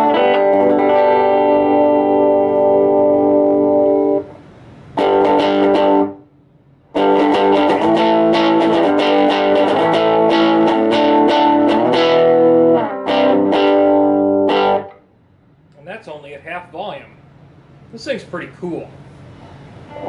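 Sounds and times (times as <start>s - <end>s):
electric guitar strummed chords: 0.0s - 6.3s, 6.9s - 15.0s.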